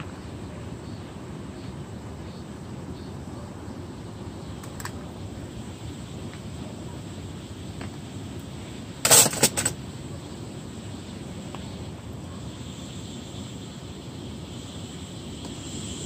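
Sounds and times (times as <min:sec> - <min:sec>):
faint hiss of gas burner: 0:00.0 - 0:16.0
gas heater ignition burst: 0:04.5 - 0:16.0.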